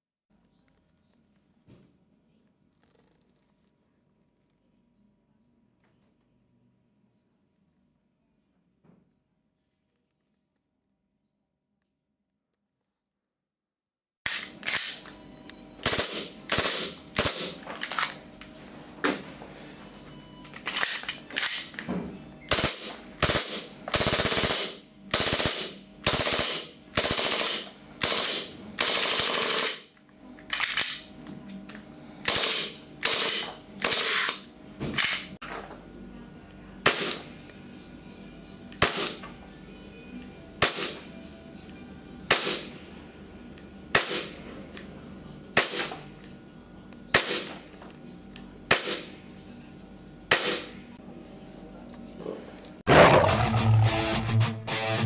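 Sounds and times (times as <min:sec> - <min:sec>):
airsoft pistol firing: 0:15.8 - 0:17.6, 0:36.9 - 0:37.3, 0:38.8 - 0:39.2, 0:40.6 - 0:41.0, 0:42.3 - 0:42.7, 0:44.0 - 0:44.4, 0:45.6 - 0:46.0, 0:47.2 - 0:47.5, 0:50.3 - 0:50.8.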